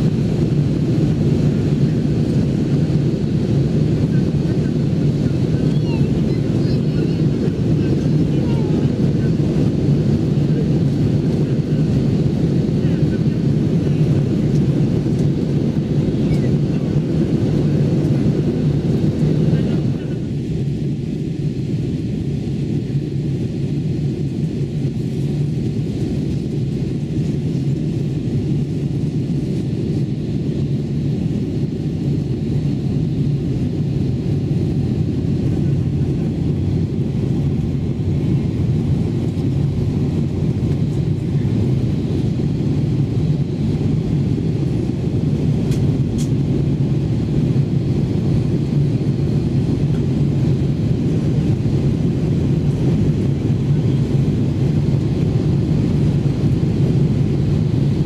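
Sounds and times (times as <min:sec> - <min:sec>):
aircraft cabin engine rumble: 0:00.0 - 0:58.0.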